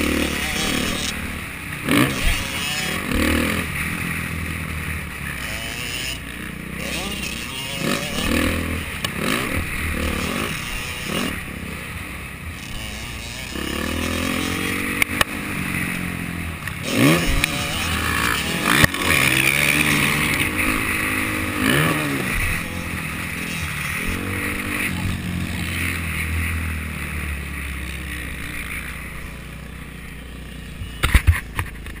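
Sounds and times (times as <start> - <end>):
dirt bike engine revving: 0.0 - 32.0.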